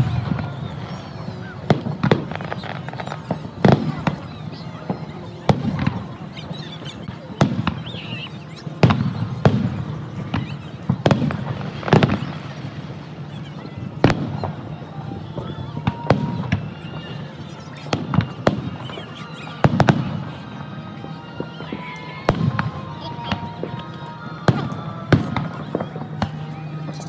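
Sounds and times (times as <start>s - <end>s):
fireworks bangs with rumbling echo: 0.0s - 27.0s.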